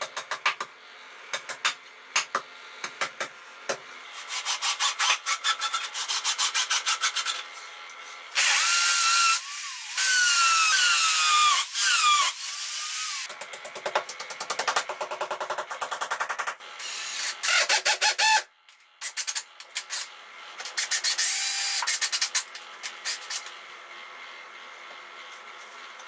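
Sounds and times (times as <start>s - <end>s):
electric drill whining: 8.4s - 13.3s, 21.0s - 22.0s.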